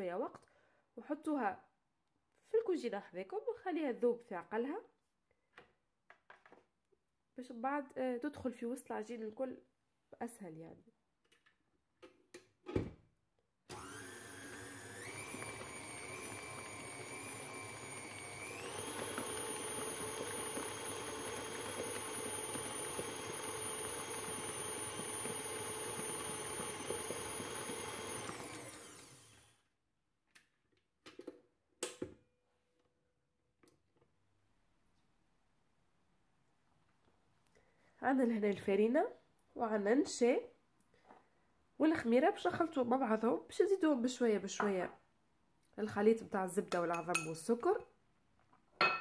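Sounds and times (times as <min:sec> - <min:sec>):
stand mixer motor running: 0:13.7 - 0:29.5.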